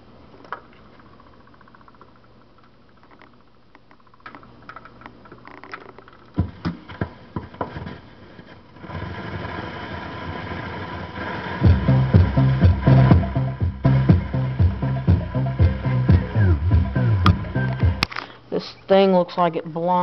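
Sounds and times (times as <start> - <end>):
record hiss and crackle: 0.0 - 20.0
stylus thump: 6.4 - 7.9.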